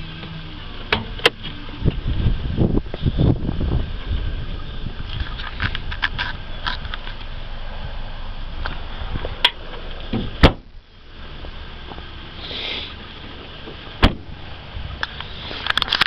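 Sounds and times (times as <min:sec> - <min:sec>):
car door shutting: 0:00.2 - 0:02.2, 0:08.6 - 0:10.7, 0:13.6 - 0:14.4
car trunk slamming shut: 0:10.1 - 0:10.7, 0:14.0 - 0:14.4.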